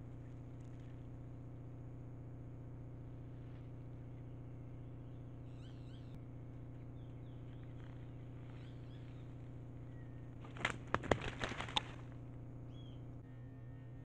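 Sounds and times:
faint bird chirps: 0.0 - 1.8, 3.0 - 14.0
steady low hum: 0.0 - 14.0
rustling and clattering in dry leaves: 7.4 - 12.2.

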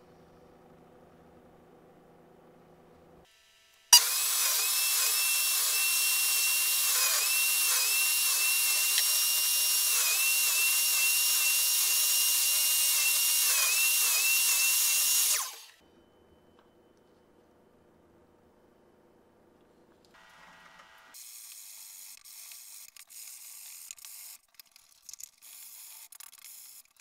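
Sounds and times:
miter saw cutting wood: 4.0 - 15.8.

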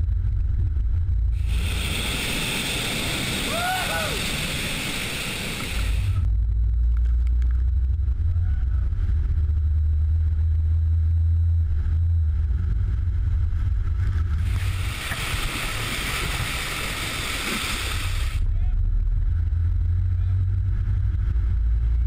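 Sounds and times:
low rumble: 0.0 - 22.0
churning spraying water: 1.4 - 6.2, 14.4 - 18.4.

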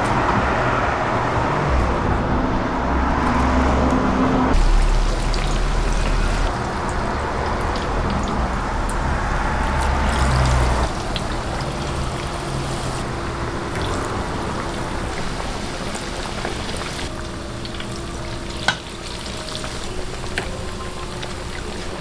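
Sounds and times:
deep-frying sizzle and bubbling: 4.5 - 22.0.

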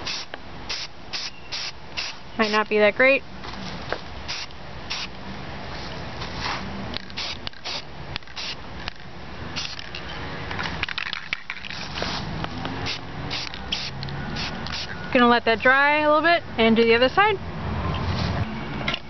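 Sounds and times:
spray paint can hissing: 0.0 - 2.6, 4.2 - 5.1, 7.1 - 8.6, 9.6 - 9.9, 11.0 - 14.9.

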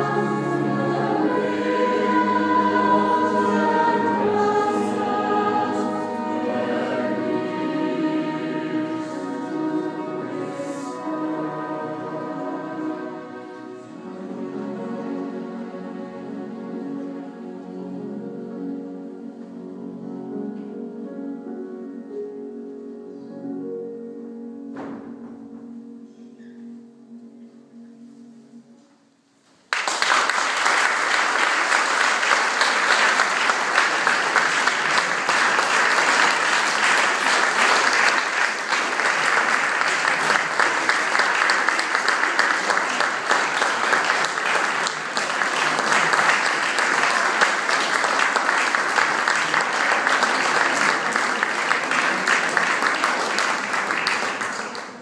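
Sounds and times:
large audience clapping: 29.7 - 55.0.

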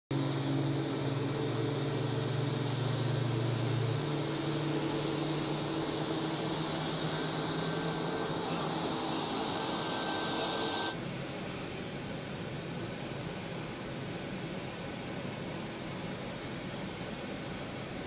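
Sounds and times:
low hum: 0.1 - 11.0
jet engines idling: 0.1 - 18.0.

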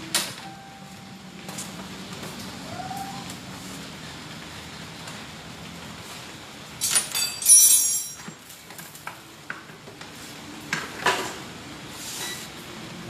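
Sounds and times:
metal tools rattling: 6.8 - 8.4
ringing metal clink: 6.8 - 8.4.

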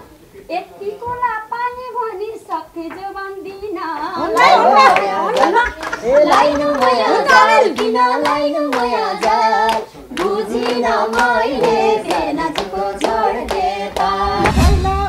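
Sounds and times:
voices singing folk song: 1.6 - 15.0
hand clapping on the beat: 3.9 - 14.6.

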